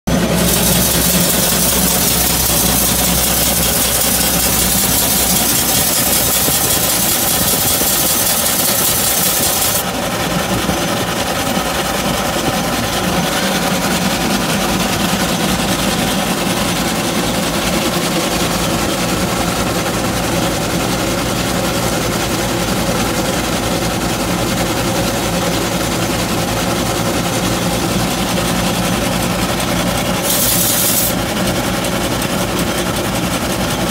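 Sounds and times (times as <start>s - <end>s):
threshing machine running: 0.0s - 33.9s
steam hissing: 0.1s - 9.9s, 30.0s - 31.3s
steam engine running: 0.1s - 33.9s.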